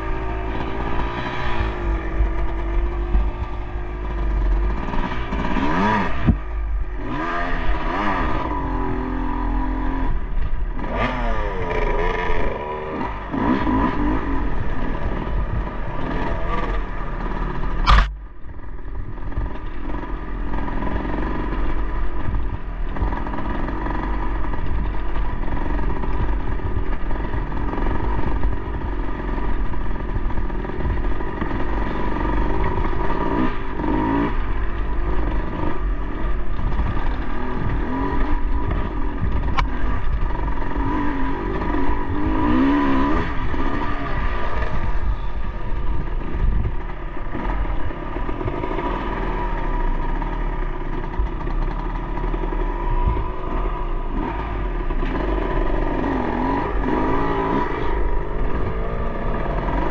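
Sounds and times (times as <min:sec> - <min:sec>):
dirt bike engine revving: 0:00.0 - 0:59.9
sharp knock: 0:17.8 - 0:18.2.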